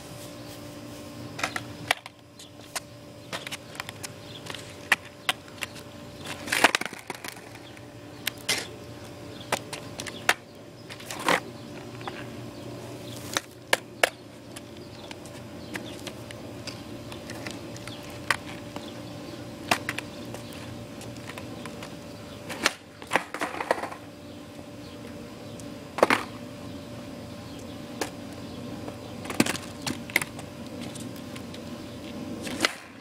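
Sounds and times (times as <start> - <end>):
skateboard wheels rolling: 1.3 - 25.3, 25.9 - 33.0
skateboard clacking on concrete: 2.8 - 8.7, 19.6 - 24.0, 29.2 - 31.6.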